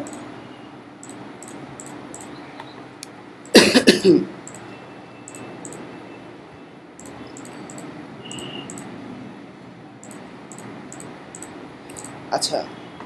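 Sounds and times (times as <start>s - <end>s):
man coughing: 3.5s - 4.3s.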